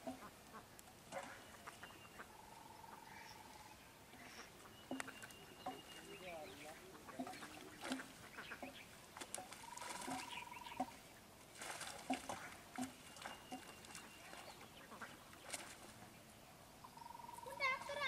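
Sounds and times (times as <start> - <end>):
water splashing: 0.0 - 2.4, 3.0 - 16.3
bird calls: 0.0 - 11.3, 12.1 - 18.0
trilling bird call: 9.6 - 11.0, 16.8 - 18.0.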